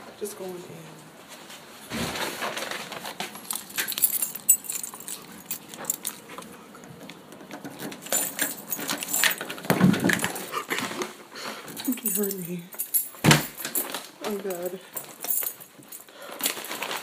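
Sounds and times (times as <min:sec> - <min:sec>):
keys jangling: 0:03.2 - 0:10.9, 0:11.6 - 0:17.0.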